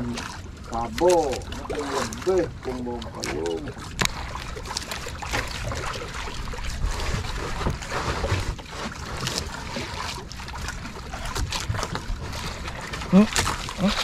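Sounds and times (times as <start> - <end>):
sea water lapping against boat: 0.0 - 14.0.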